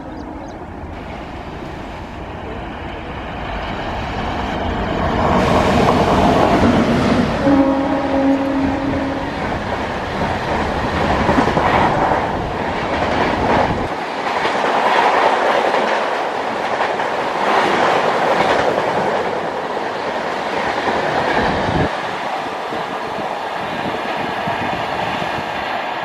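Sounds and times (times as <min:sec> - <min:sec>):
train coaches rushing past: 0:00.0 - 0:26.0
locomotive horn: 0:07.4 - 0:09.4.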